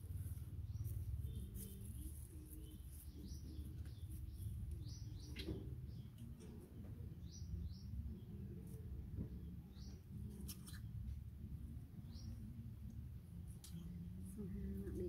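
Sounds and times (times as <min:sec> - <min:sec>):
low steady hum: 0:00.0 - 0:15.0
birds chirping: 0:00.1 - 0:08.7.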